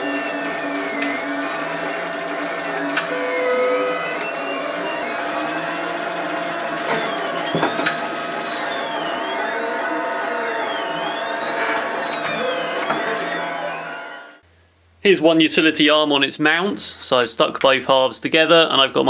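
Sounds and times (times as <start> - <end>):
steady hum: 0.0 - 14.4
stepper motors whining: 0.0 - 14.4.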